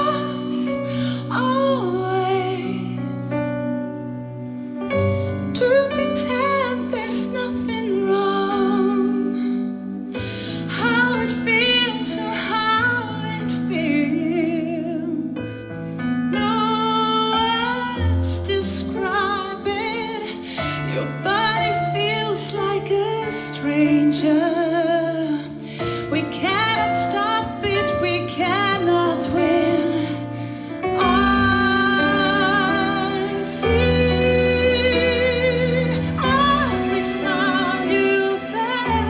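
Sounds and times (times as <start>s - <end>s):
woman singing with vibrato: 0.0s - 3.4s, 5.5s - 10.0s, 16.4s - 39.0s.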